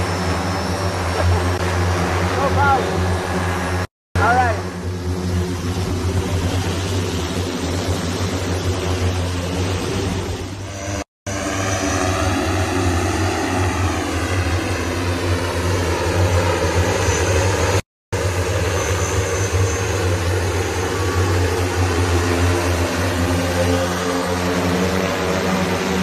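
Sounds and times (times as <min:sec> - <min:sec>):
multicopter propellers buzzing: 0:00.0 - 0:26.0.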